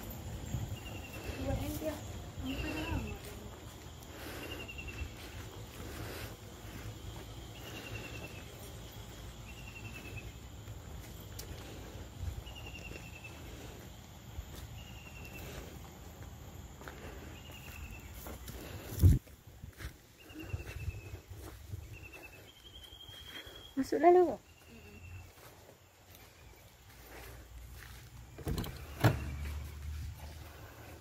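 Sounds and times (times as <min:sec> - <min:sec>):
low outdoor rumble: 0:24.9 - 0:31.0.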